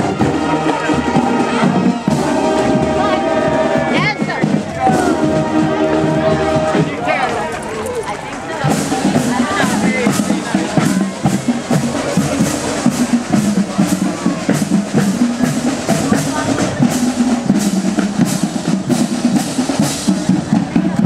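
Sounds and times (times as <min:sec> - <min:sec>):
drumline playing marching cadence: 0:00.0 - 0:21.0.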